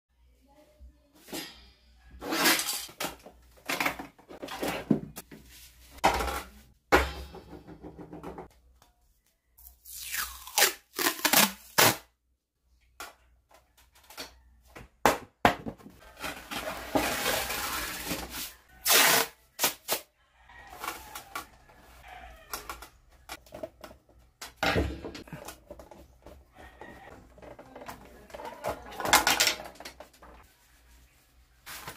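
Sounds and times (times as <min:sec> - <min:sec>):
masking tape ripping: 0:09.8 - 0:12.1, 0:18.8 - 0:20.0.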